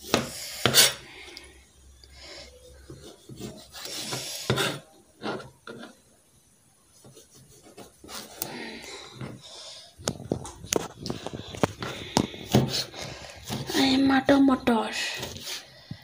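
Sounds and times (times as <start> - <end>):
knife scraping cutting board: 0.1 - 1.0, 2.9 - 6.0.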